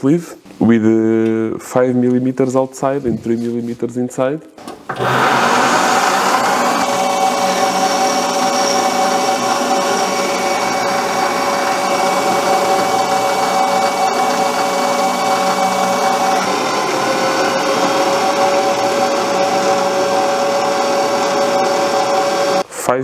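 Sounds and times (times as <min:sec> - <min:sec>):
metal lathe whining: 0:04.9 - 0:22.6.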